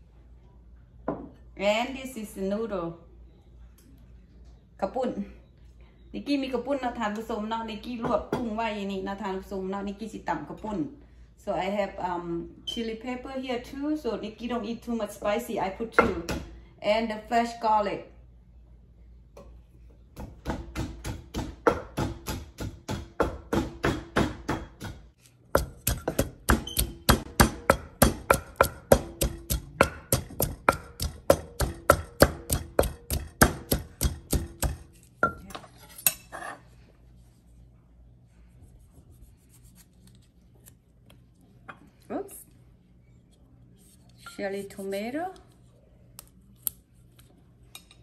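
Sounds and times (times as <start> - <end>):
pestle pounding in clay mortar: 20.2 - 35.5.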